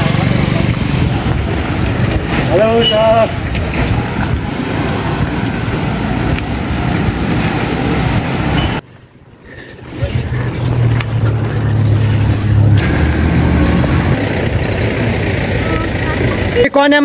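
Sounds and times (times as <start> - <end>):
wind buffeting microphone: 0.0 - 8.8
road noise: 0.0 - 17.0.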